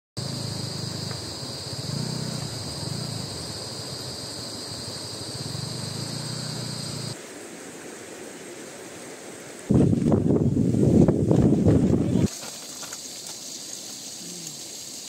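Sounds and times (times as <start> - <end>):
high-pitched insect drone: 0.2 - 7.2, 12.2 - 15.0
motorcycle engine at low revs: 0.2 - 7.2.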